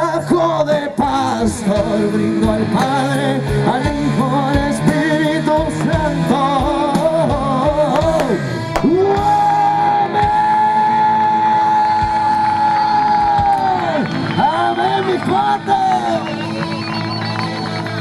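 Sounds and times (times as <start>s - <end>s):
man singing: 0.0s - 12.8s
live rock band: 0.0s - 18.0s.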